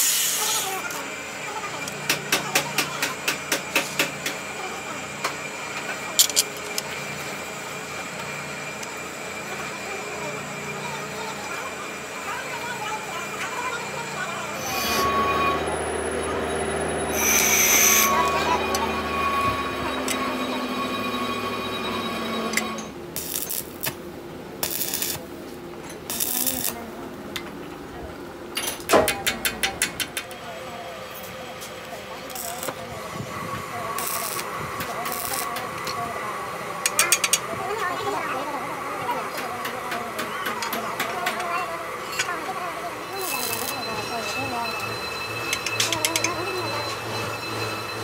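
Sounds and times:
machine hum with high whine: 0.0s - 48.0s
steady hum: 4.6s - 28.5s
arc welder crackling: 14.4s - 20.5s, 22.2s - 27.3s, 31.6s - 36.1s, 43.1s - 44.1s.

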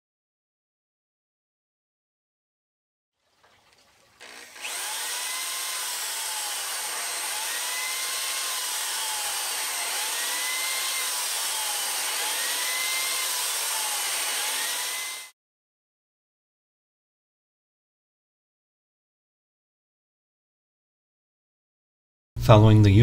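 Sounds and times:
electric drill whining: 4.2s - 15.4s.

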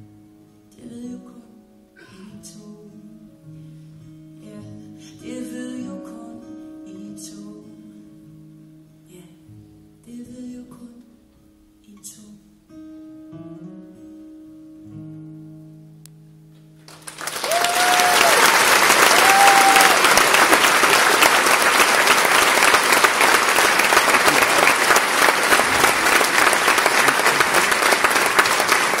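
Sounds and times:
solo acoustic guitar: 0.0s - 17.0s
audience applause: 16.9s - 29.0s
audience cheering: 16.9s - 29.0s.

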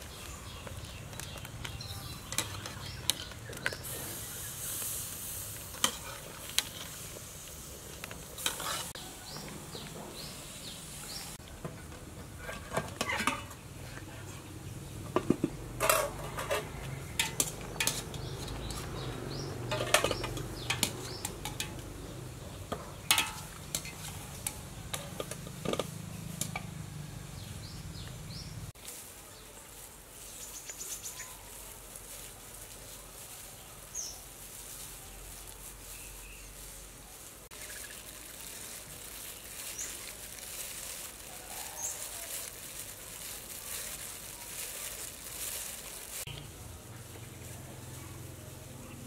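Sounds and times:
outdoor ambience: 0.0s - 49.0s
wire strainer clinking on metal pot: 15.8s - 18.9s, 23.1s - 26.6s.

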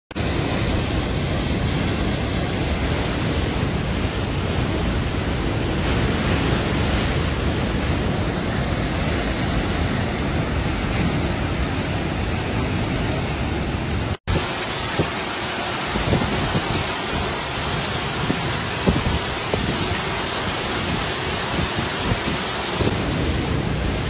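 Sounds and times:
river rushing over a weir: 0.1s - 24.0s.

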